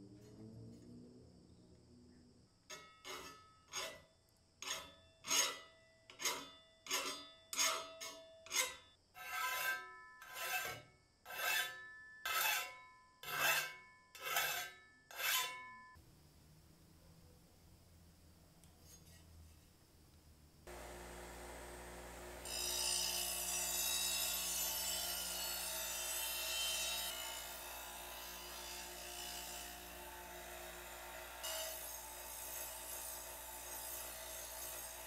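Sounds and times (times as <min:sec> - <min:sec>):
hand file scraping steel: 0:02.7 - 0:04.0, 0:04.6 - 0:15.6, 0:22.4 - 0:35.0.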